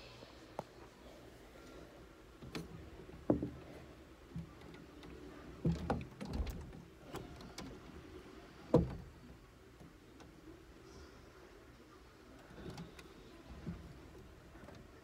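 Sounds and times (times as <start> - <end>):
dull thumps and knocks: 2.4 - 4.8.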